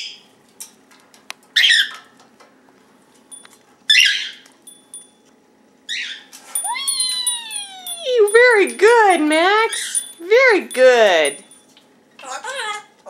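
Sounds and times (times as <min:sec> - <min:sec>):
parrot squawking: 0:01.6 - 0:02.0, 0:03.9 - 0:04.4, 0:05.9 - 0:07.8.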